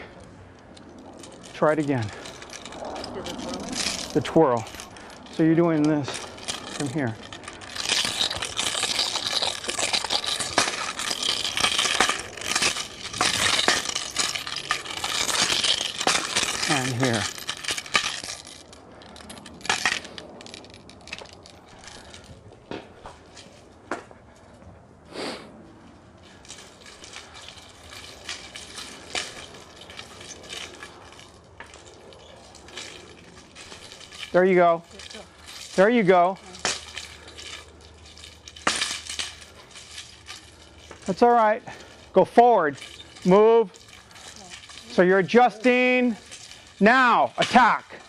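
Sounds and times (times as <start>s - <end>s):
wooden sections clacking: 0.0s - 24.0s
metal chain links jangling: 0.7s - 22.4s, 26.2s - 48.0s.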